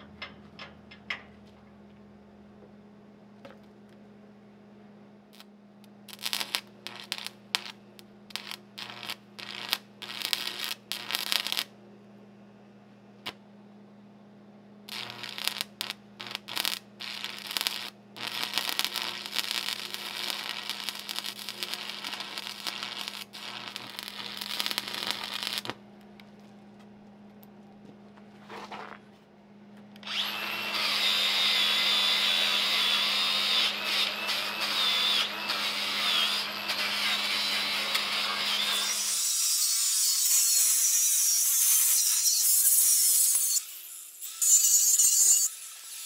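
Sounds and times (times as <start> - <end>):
steady low hum: 0.0 - 30.2
welding arc crackling: 6.1 - 11.7, 14.9 - 25.8, 30.0 - 40.5.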